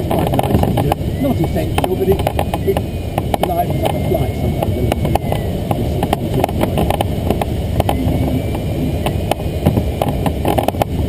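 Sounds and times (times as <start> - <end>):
air rushing past glider canopy: 0.0 - 11.0
faint electronic variometer tone: 0.0 - 11.0
clicks and knocks from airframe: 9.0 - 11.0.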